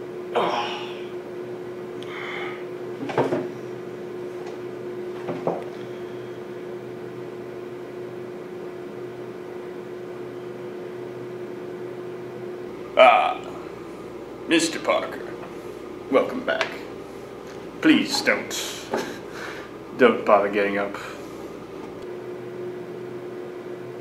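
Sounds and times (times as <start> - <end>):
room tone hum: 0.0 - 24.0
wooden chair knocks and rustles: 3.0 - 3.5, 5.2 - 5.7.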